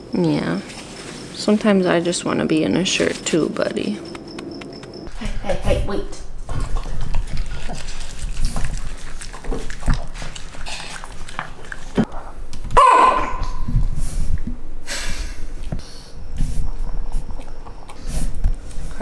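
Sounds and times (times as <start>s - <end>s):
dog chewing and licking: 6.4s - 12.3s
dog crying: 12.8s - 13.7s.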